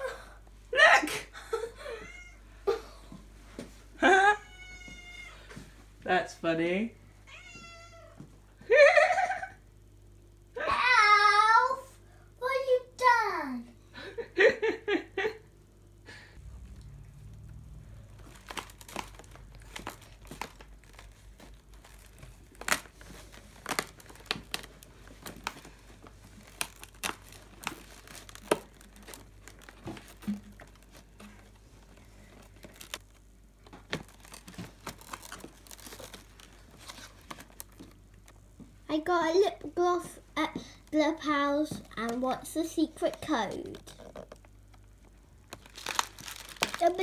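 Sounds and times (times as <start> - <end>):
cardboard crinkling and tearing: 18.1 - 31.6, 32.2 - 38.3, 45.5 - 47.0.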